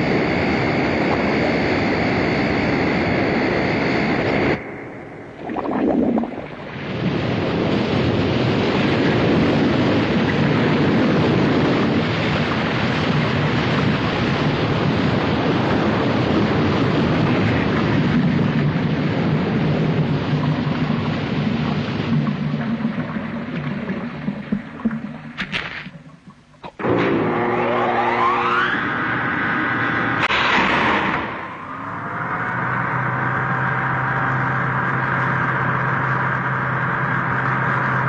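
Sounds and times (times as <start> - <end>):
underwater rushing water: 0.8 - 26.8.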